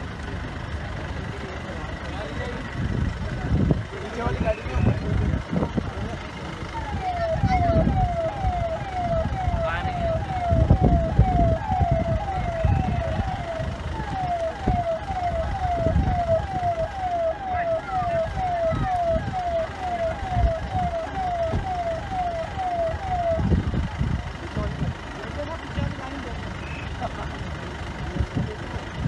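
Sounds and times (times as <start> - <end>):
electronic siren yelp: 6.7 - 23.8.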